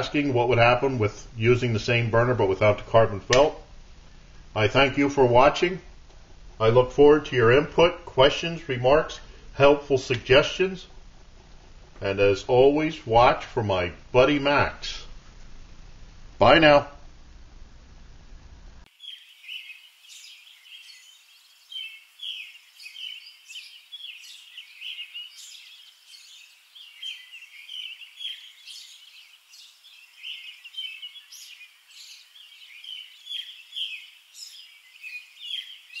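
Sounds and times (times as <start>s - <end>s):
songbirds chirping and singing: 18.9s - 36.0s.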